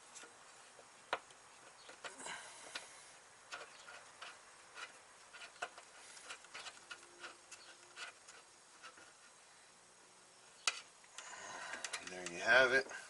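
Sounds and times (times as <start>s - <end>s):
light metal clicks and taps: 10.6s - 12.4s.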